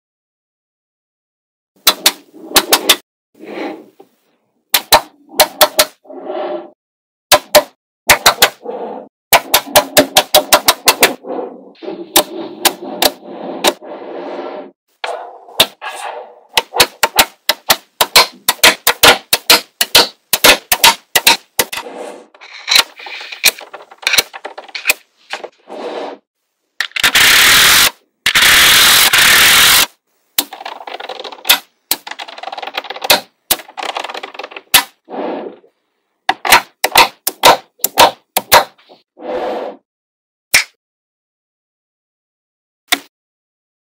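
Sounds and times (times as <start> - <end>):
dense rattling noise: 20.3 - 25.6, 30.5 - 34.7.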